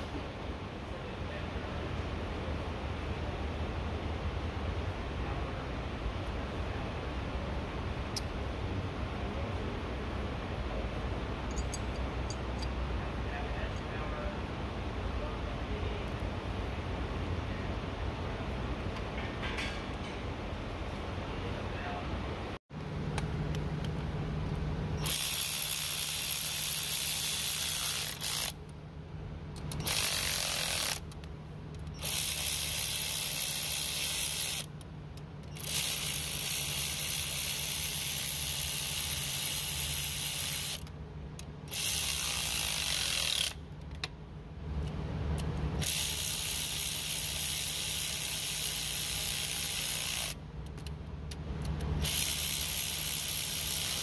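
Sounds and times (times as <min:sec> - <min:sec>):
power ratchet running: 0:25.0 - 0:28.6, 0:29.7 - 0:31.2, 0:31.8 - 0:34.7, 0:35.4 - 0:40.9, 0:41.6 - 0:43.6, 0:45.8 - 0:50.4, 0:52.0 - 0:54.0.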